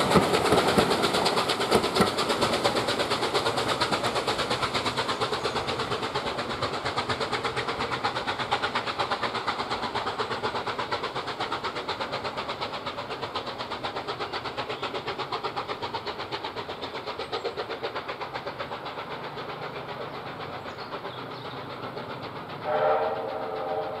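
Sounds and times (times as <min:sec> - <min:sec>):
steam locomotive chuffing: 0:00.0 - 0:24.0
steam whistle: 0:22.6 - 0:24.0.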